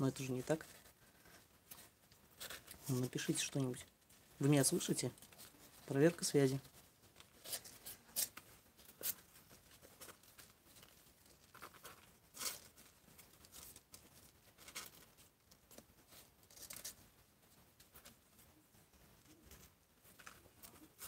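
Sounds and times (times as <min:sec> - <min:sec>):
kittens scratching on cardboard: 0:06.6 - 0:18.3.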